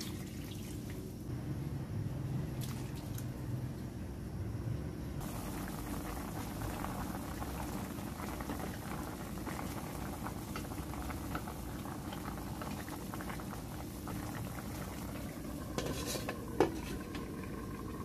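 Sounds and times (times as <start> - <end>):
sauce bubbling and popping: 5.2 - 18.0.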